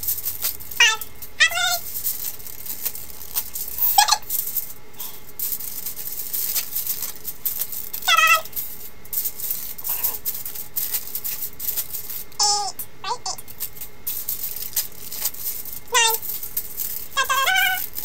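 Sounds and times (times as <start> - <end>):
aluminium foil crinkling: 0.0 - 12.4, 13.4 - 18.0
squeaky high-pitched voice sounds: 0.8 - 1.9, 3.8 - 4.3, 8.0 - 8.5, 12.4 - 13.4, 15.9 - 16.4, 17.1 - 18.0.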